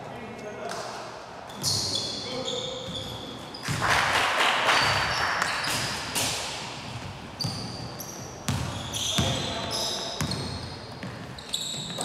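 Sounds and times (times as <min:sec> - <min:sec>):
sneakers squeaking: 0:01.4 - 0:04.0, 0:04.7 - 0:12.0
basketball bouncing on wood floor: 0:08.5 - 0:09.4.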